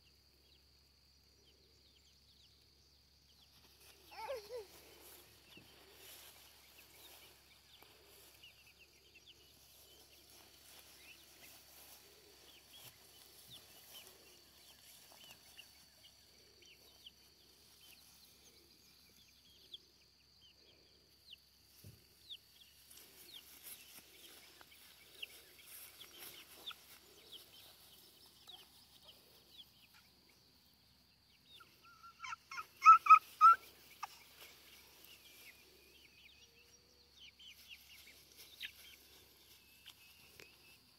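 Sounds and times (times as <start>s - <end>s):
chickens clucking: 21.8s - 30.4s, 31.5s - 35.6s, 36.7s - 40.6s.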